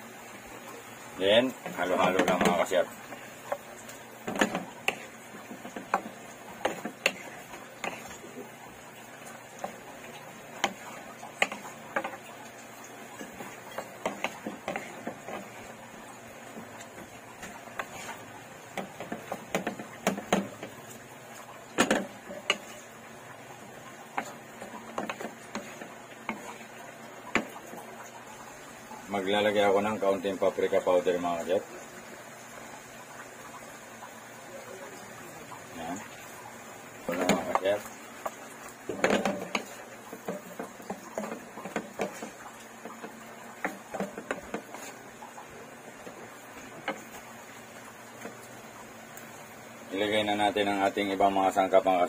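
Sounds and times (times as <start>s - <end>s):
faint sizzle: 0.0s - 52.0s
spatula scraping a wok: 4.3s - 8.3s, 16.5s - 20.6s, 38.9s - 45.0s.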